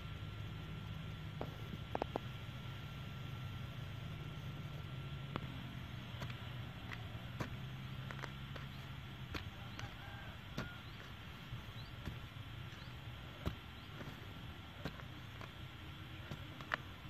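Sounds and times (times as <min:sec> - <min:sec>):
stick digging and scraping soil: 0:05.3 - 0:17.0.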